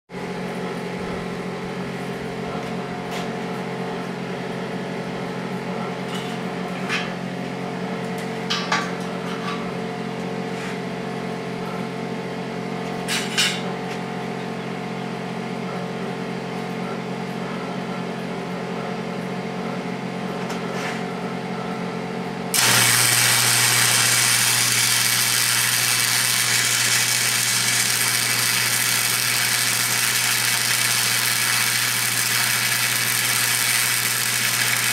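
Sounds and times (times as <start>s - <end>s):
steady machine hum: 22.6s - 34.9s
welder arc crackling hiss: 22.6s - 34.9s.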